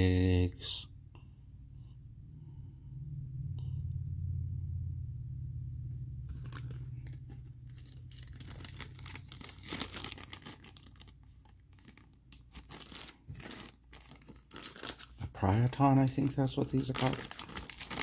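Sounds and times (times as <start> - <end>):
low steady hum: 0.0 - 18.0
plastic bag crinkling: 6.3 - 18.0.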